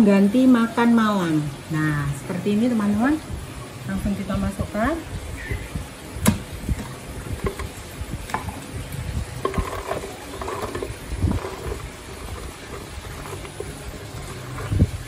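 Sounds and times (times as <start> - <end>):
sharp knocks: 6.2 - 6.5.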